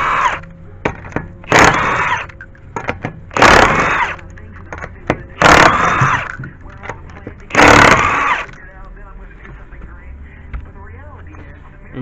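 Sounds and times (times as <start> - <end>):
impact wrench hammering: 0.0 - 8.6.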